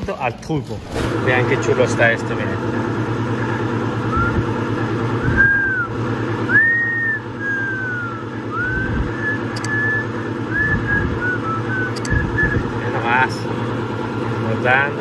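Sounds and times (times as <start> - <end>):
low machine hum: 0.0 - 15.0
person whistling: 4.1 - 4.5, 5.2 - 12.7.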